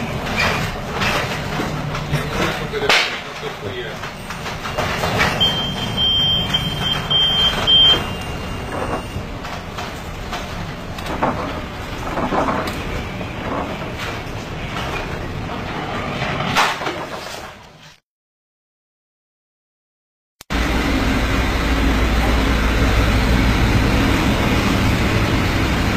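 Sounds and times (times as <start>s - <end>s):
high beeping tone: 4.2s - 9.3s.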